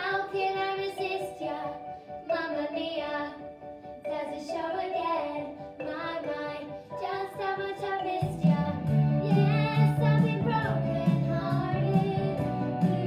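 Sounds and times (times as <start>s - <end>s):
instrumental accompaniment: 1.0s - 13.0s
girls singing: 4.0s - 13.0s.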